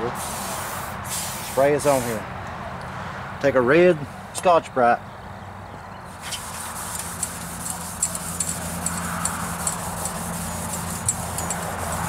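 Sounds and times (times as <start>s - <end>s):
scouring pad scrubbing metal: 6.2s - 12.0s.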